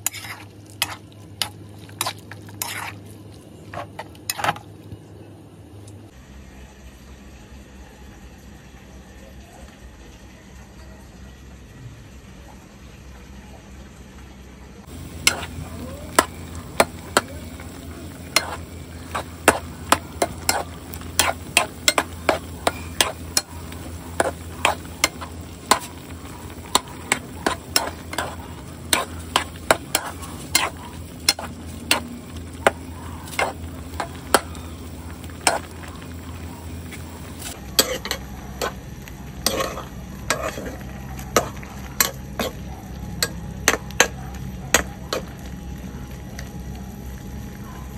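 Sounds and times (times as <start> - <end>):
food sizzling: 0.0 - 4.4, 14.8 - 47.9
metal spoon clinking against pan: 15.1 - 32.0.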